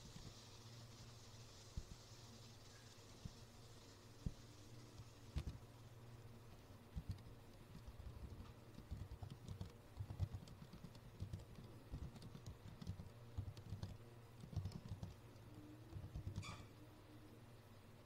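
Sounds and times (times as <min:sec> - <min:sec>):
faint computer keyboard typing: 0:05.0 - 0:05.6, 0:06.9 - 0:17.4.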